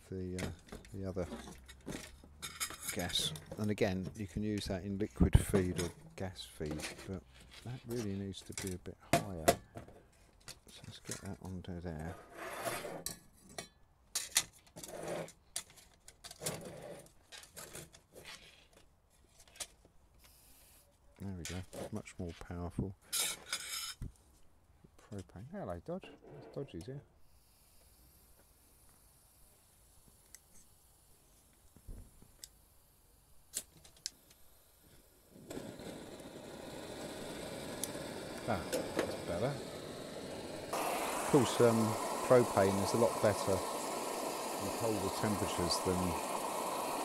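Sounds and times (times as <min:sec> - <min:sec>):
stove burner hissing: 0:00.0 - 0:04.7, 0:27.3 - 0:47.0
short metal scrapes: 0:23.1 - 0:24.0.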